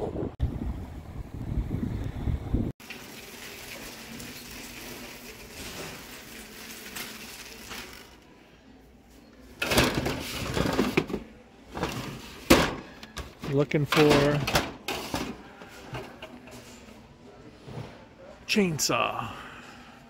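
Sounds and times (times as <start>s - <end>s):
wind on microphone: 0.0s - 2.7s
shop interior hiss: 2.8s - 20.0s
handling noise on metal shelf: 3.6s - 8.2s, 9.5s - 16.9s.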